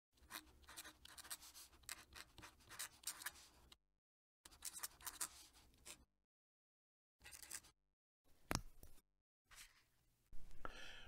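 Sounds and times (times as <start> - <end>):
pen nib scratching on paper: 0.2 - 3.6, 4.5 - 6.0.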